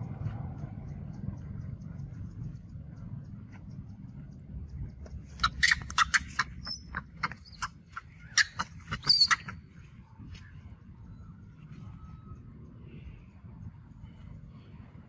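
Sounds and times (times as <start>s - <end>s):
monkey squealing and shrieking: 5.4s - 9.6s.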